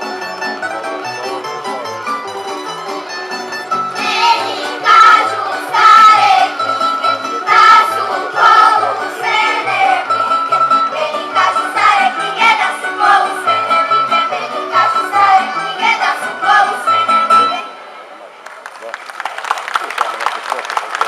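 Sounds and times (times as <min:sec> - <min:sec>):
double bass line: 0:00.0 - 0:17.6
plucked string accompaniment: 0:00.0 - 0:18.0
children singing together: 0:04.0 - 0:17.2.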